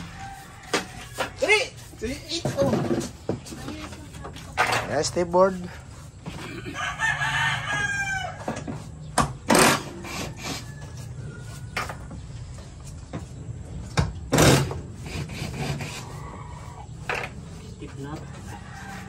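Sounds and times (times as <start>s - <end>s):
rooster crowing: 0.0s - 1.5s, 6.6s - 8.7s, 9.8s - 12.0s, 18.3s - 19.0s
plastic panel scrapes and knocks: 2.2s - 5.0s.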